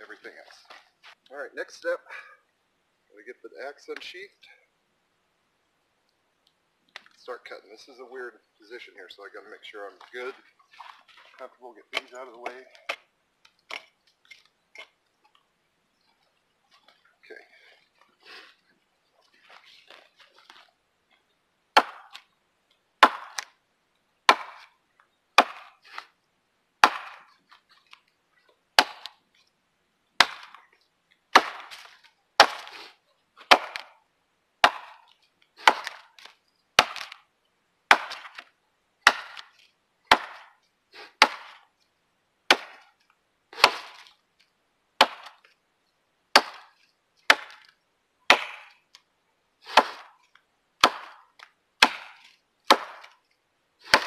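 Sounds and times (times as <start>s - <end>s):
axe chopping into tree trunk: 21.8s - 22.2s, 23.0s - 23.5s, 24.3s - 24.7s, 25.4s - 26.1s, 26.8s - 27.3s, 28.8s - 29.2s, 30.2s - 30.6s, 31.3s - 32.8s, 33.5s - 33.9s, 34.6s - 35.0s, 35.6s - 37.2s, 37.9s - 39.5s, 40.1s - 40.5s, 41.1s - 41.6s, 42.5s - 42.8s, 43.6s - 44.1s, 45.0s - 45.4s, 46.4s - 47.7s, 48.3s - 48.8s, 49.7s - 50.2s, 50.8s - 51.2s, 51.8s - 53.1s.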